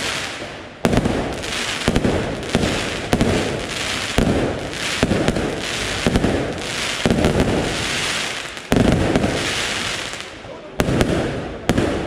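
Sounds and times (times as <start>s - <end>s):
rumbling crackling firework tails: 0.0s - 12.0s
firework shells bursting: 0.8s - 10.2s.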